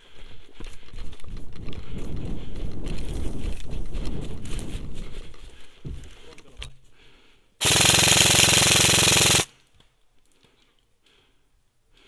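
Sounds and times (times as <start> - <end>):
airsoft rifle full-auto burst: 7.6 - 9.6.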